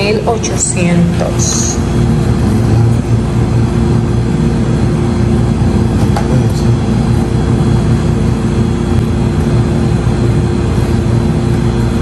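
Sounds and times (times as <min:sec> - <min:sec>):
constant tone: 0:00.0 - 0:12.0
low machine hum: 0:00.0 - 0:12.0.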